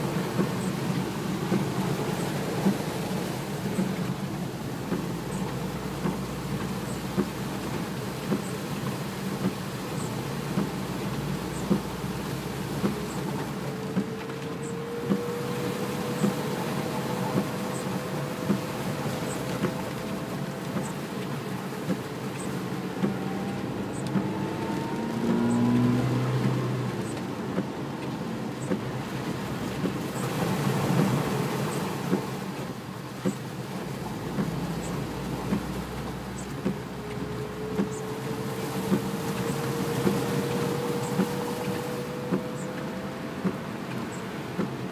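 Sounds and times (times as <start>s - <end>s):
car engine and road noise: 0.0s - 44.9s
heavy rain: 0.0s - 44.9s
windscreen wipers ticking: 0.0s - 44.9s.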